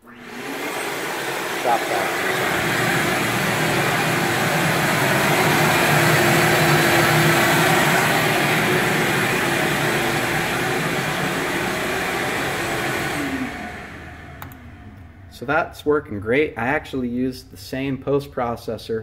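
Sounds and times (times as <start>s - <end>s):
motor hum: 0.0s - 15.4s.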